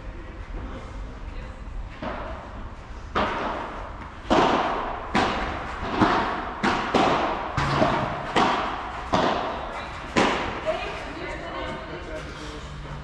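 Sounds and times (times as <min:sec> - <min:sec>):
rackets striking ball: 0:03.1 - 0:11.0.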